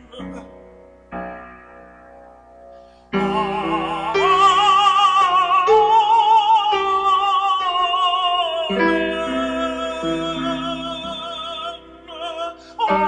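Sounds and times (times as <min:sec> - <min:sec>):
man singing with vibrato: 0:00.0 - 0:00.6, 0:03.1 - 0:13.0.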